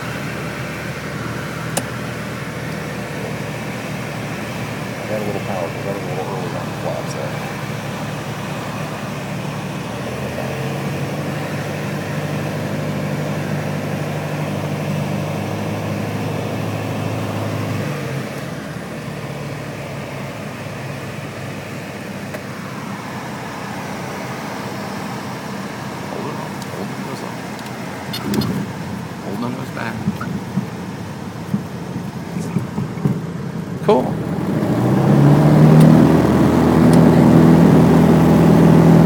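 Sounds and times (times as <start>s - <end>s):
light aircraft engine and propeller: 0.0s - 39.0s.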